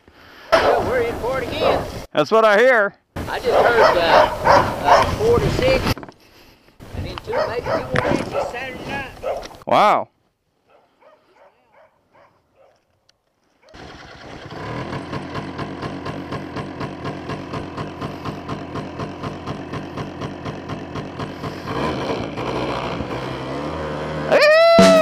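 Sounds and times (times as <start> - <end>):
atv engine idling: 13.8 - 22.8.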